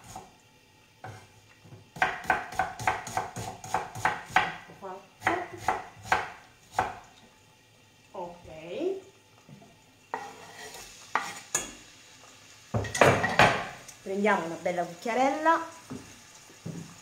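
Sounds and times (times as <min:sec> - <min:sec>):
knife chopping on wooden board: 0:02.0 - 0:07.0.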